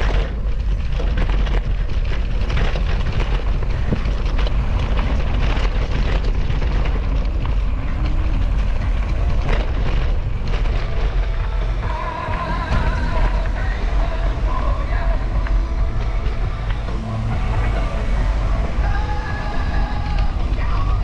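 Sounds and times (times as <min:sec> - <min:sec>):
bike rattling and knocking: 0:00.0 - 0:21.0
wind rushing over microphone: 0:00.0 - 0:21.0.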